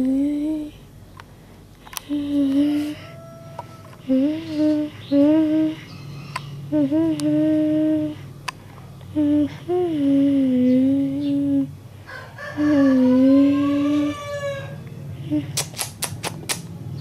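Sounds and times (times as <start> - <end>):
person humming slow tune: 0.0 - 0.9, 1.9 - 6.0, 6.7 - 8.4, 9.0 - 11.8, 12.6 - 14.5, 15.2 - 15.6.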